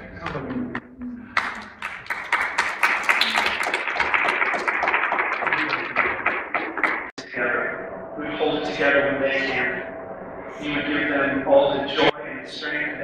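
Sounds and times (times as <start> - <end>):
crowd applauding: 1.2 - 7.1.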